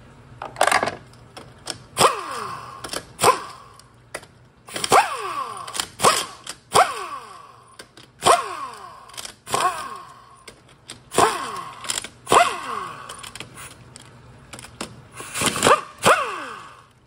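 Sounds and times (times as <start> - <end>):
air wrench bursts: 2.0 - 3.8, 4.7 - 7.6, 8.2 - 10.4, 11.1 - 13.7, 15.2 - 16.9.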